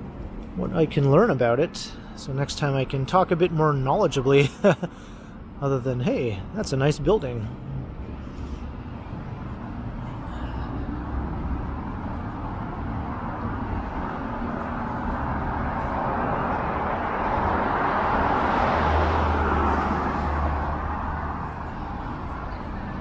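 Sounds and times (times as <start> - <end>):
urban traffic hum: 0.0 - 23.0
vehicle passing: 7.1 - 23.0.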